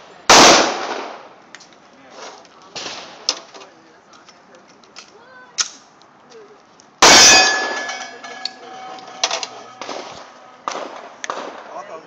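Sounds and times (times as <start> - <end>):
pistol shot: 0.3 - 1.2, 9.8 - 11.7
steel target ringing: 7.0 - 11.2.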